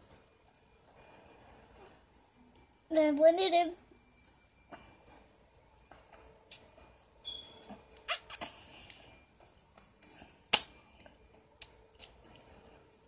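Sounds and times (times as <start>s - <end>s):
brief high squeak: 7.2s - 8.3s.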